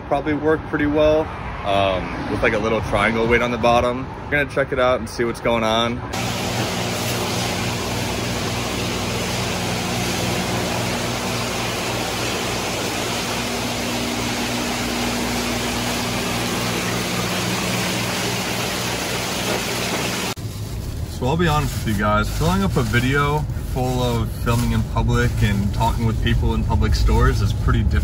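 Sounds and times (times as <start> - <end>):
water spraying and splashing: 6.2 - 28.0.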